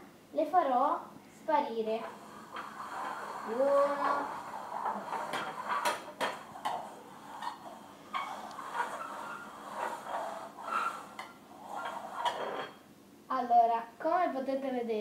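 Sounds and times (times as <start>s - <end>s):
small cups clicking on tabletop: 3.9s - 7.6s.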